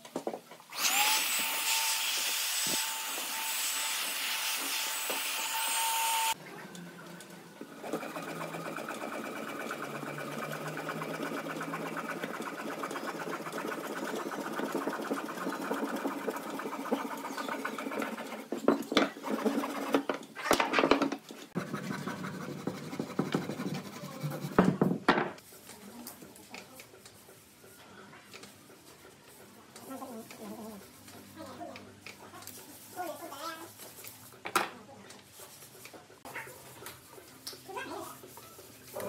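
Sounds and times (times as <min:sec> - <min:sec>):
saw cutting branch: 0:07.8 - 0:18.5.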